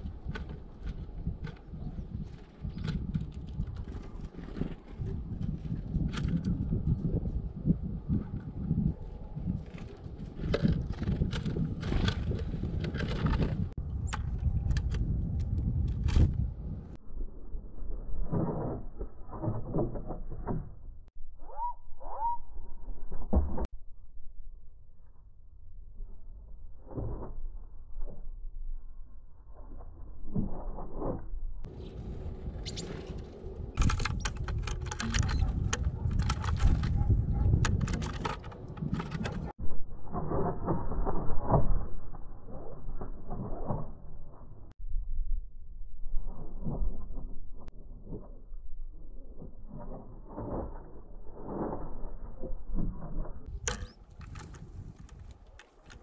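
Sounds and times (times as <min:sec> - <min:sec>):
wings fluttering: 0:00.0 - 0:17.0, 0:30.3 - 0:39.5
steady low rumble: 0:00.0 - 0:18.3, 0:31.3 - 0:40.1
bird pecking on plywood: 0:33.8 - 0:39.5.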